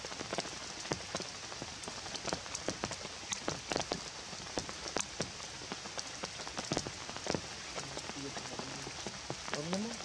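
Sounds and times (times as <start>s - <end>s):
rain falling: 0.0s - 10.0s
raindrops ticking: 0.0s - 10.0s.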